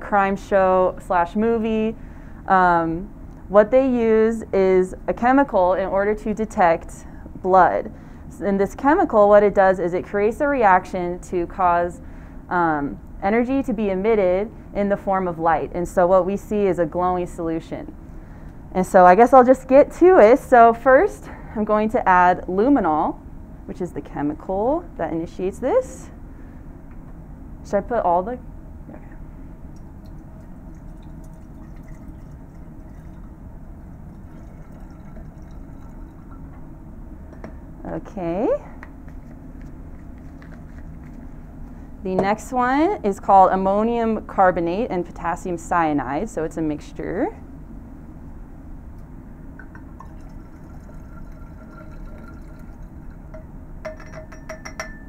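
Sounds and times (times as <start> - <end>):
low background hum: 0.0 - 55.0
liquid trickling into glass: 29.7 - 36.6, 49.6 - 55.0.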